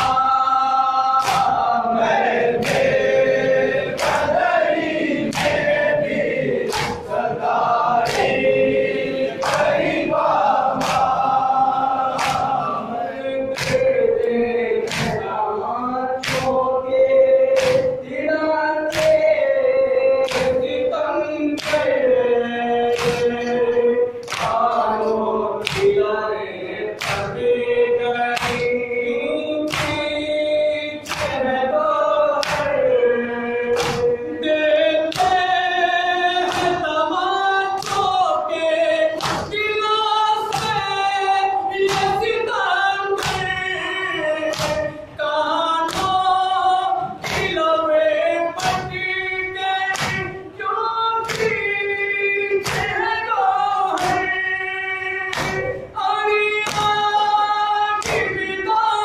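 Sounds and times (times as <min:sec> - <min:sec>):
men chanting a lament in chorus: 0:00.0 - 0:59.0
hands slapping chests: 0:01.1 - 0:01.8, 0:02.5 - 0:03.1, 0:03.9 - 0:08.5, 0:09.4 - 0:11.3, 0:12.0 - 0:12.6, 0:13.6 - 0:14.0, 0:14.8 - 0:15.2, 0:16.2 - 0:16.7, 0:17.5 - 0:18.0, 0:18.9 - 0:19.3, 0:24.2 - 0:24.8, 0:25.6 - 0:26.0, 0:29.7 - 0:30.1, 0:33.7 - 0:34.2, 0:36.4 - 0:36.8, 0:39.2 - 0:39.6, 0:44.5 - 0:44.9, 0:54.0 - 0:54.3, 0:55.3 - 0:55.8.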